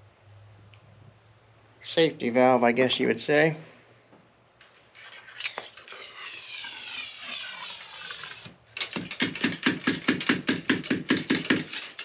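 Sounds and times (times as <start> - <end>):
ramrod scraping in a barrel: 11.4 - 12.0.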